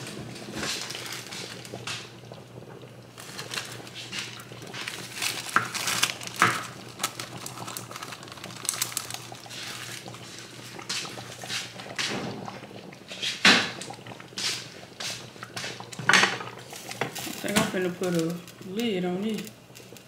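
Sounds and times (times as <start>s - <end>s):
soup bubbling in a pot: 0.0s - 20.0s
kitchen knocks and clatters: 16.0s - 18.2s.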